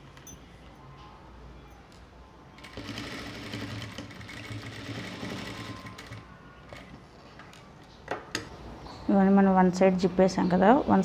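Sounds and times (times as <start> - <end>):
sewing machine running: 2.6 - 7.0.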